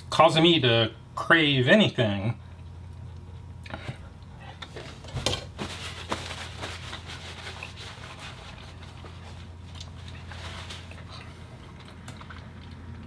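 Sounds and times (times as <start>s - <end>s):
paper napkin rustling: 4.8s - 11.2s.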